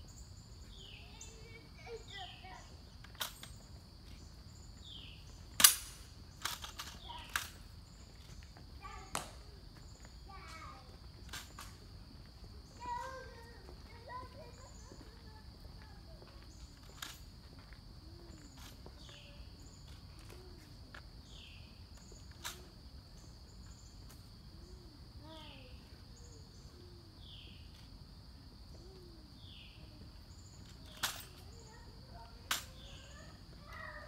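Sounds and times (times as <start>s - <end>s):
birds calling: 0.0s - 11.8s
insect drone: 0.0s - 34.0s.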